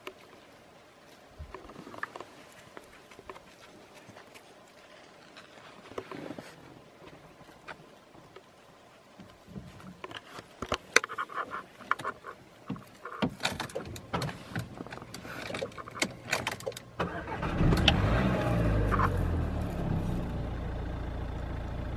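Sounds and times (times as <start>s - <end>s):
clicks and rattles inside car: 11.8s - 18.0s
car engine starting and running: 16.0s - 21.9s.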